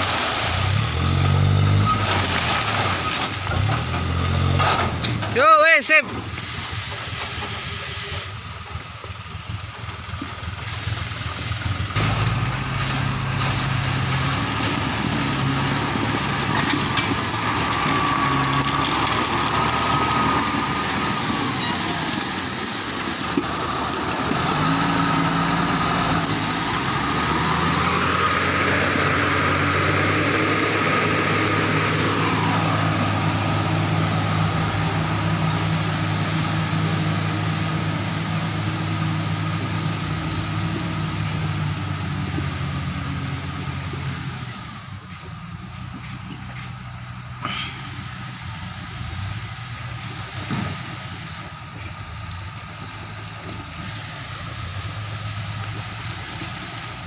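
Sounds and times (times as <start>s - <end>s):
stone tipping from dump truck: 0.0s - 5.4s, 11.8s - 38.0s
heavy diesel engines running: 0.0s - 57.0s.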